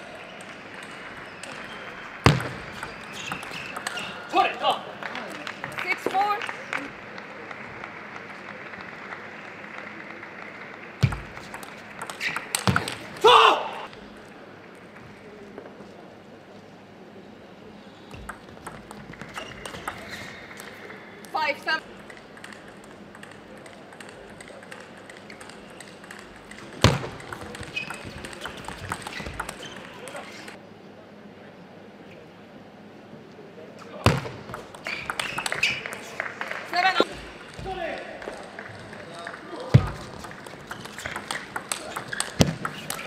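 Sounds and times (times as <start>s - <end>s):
hall background noise: 0.0s - 43.0s
ping pong ball and bat clicks: 0.4s - 4.2s, 11.0s - 13.0s, 18.1s - 20.8s, 21.8s - 30.6s, 34.4s - 36.1s, 39.7s - 43.0s
table tennis serve thud: 0.8s - 4.2s, 11.0s - 13.3s, 18.1s - 21.0s, 22.0s - 30.6s, 34.0s - 36.2s, 39.7s - 43.0s.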